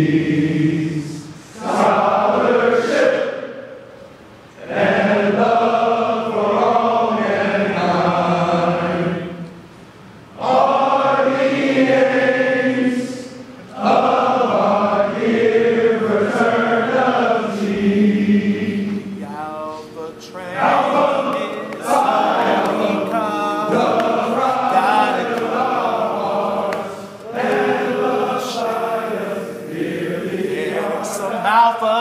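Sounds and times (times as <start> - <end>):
men singing in unison: 10.4 - 19.1, 20.4 - 32.0.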